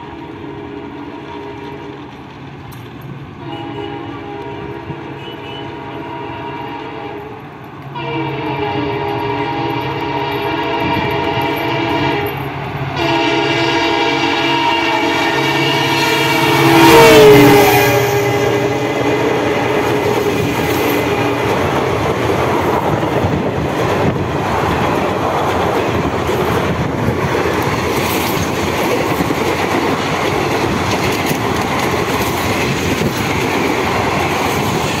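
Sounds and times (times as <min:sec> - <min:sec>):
train wheels clattering over rails: 0:00.0 - 0:05.3, 0:18.3 - 0:35.0
locomotive horn: 0:00.4 - 0:02.0, 0:03.4 - 0:21.8.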